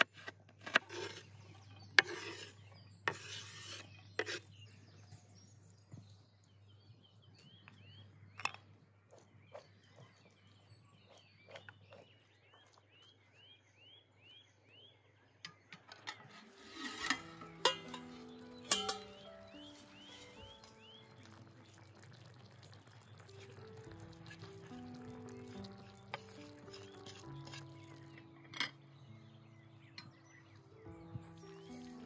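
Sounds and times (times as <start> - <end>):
scraping on a wooden cutting board: 0.0 - 4.6, 16.2 - 17.6
bird chirping: 1.0 - 32.0
liquid pouring and gurgling: 20.4 - 27.0.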